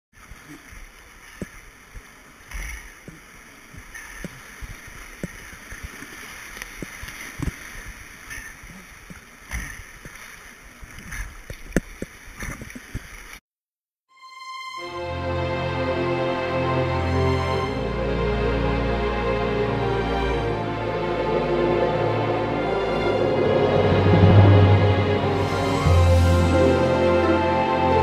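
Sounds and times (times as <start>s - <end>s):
music: 14.1s - 28.0s.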